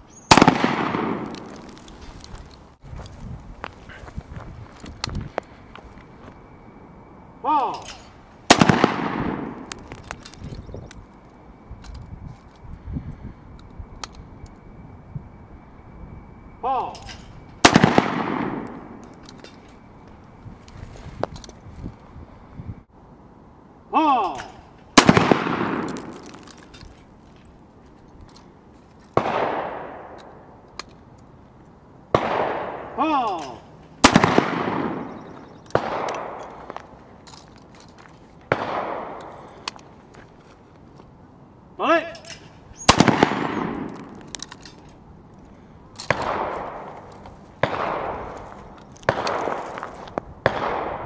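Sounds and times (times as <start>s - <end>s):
pistol shot with echo: 0.3s - 1.5s, 8.5s - 9.7s, 17.6s - 19.0s, 24.4s - 26.2s, 29.2s - 30.5s, 32.1s - 36.6s, 38.5s - 39.6s, 42.8s - 44.2s, 46.1s - 47.0s, 47.6s - 48.4s, 49.1s - 49.6s, 50.4s - 51.0s.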